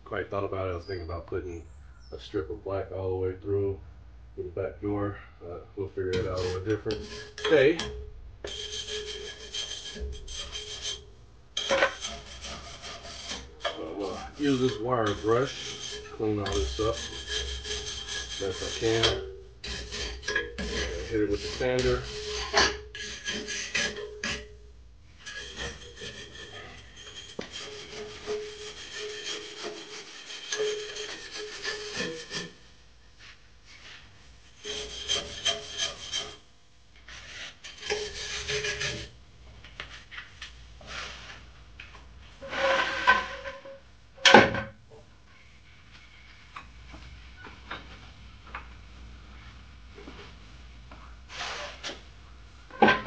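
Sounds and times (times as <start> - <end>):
loud scrape: 6.1 - 11.0, 11.6 - 24.5, 25.2 - 36.5, 37.1 - 39.1, 40.8 - 41.4, 42.4 - 43.8, 51.3 - 52.0
sander scraping rust off metal: 6.1 - 39.2, 42.4 - 43.8, 51.3 - 52.0.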